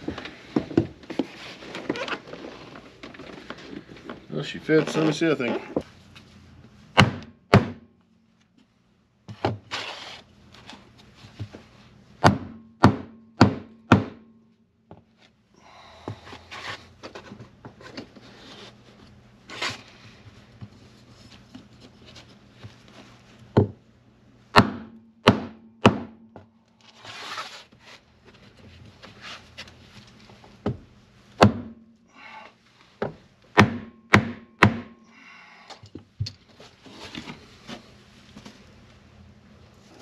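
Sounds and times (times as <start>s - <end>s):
hammer knocking on cardboard: 12.2s - 14.2s, 33.0s - 35.0s.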